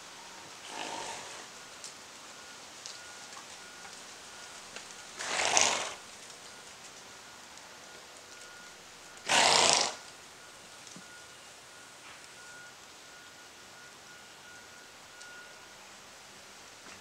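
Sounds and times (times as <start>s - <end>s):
horse snorting through nostrils: 0.6s - 1.5s, 5.2s - 6.0s, 9.3s - 10.0s.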